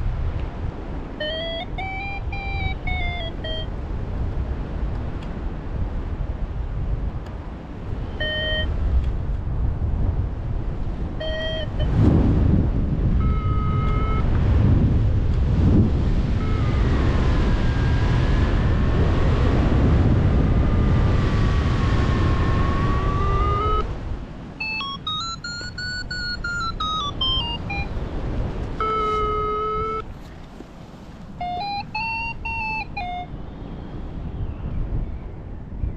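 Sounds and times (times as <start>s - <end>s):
wind rushing on microphone: 0.0s - 35.9s
variometer beeps and tones: 1.2s - 3.7s, 8.1s - 8.8s, 11.2s - 12.0s, 13.2s - 14.4s, 16.3s - 19.5s, 20.4s - 23.9s, 24.6s - 28.0s, 28.8s - 30.0s, 31.4s - 33.3s.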